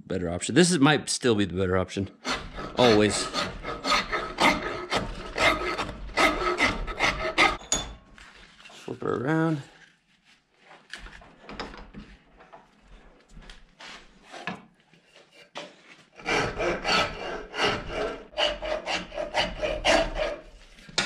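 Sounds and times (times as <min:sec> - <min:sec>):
rasp strokes on wood: 0:02.2 - 0:07.6, 0:16.2 - 0:20.8.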